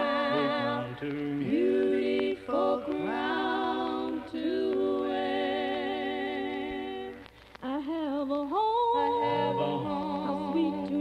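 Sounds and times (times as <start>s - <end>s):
vocal group singing a hymn: 0.0s - 11.0s.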